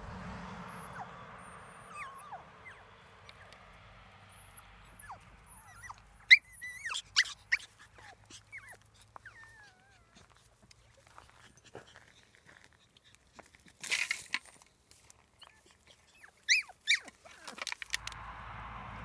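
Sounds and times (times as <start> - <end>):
puppies yelping: 0.5 - 13.6, 15.2 - 18.2
puppies whimpering: 0.7 - 3.6, 4.2 - 13.6, 15.3 - 17.8.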